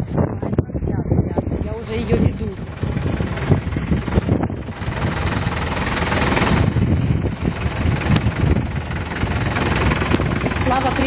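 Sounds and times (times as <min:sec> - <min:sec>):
car engines crawling: 0:00.0 - 0:11.0
wind buffeting microphone: 0:00.0 - 0:11.0.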